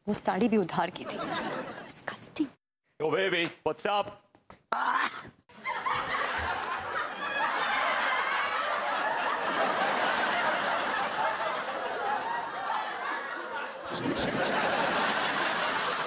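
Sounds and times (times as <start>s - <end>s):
audience laughing: 1.0s - 2.3s, 5.5s - 16.0s.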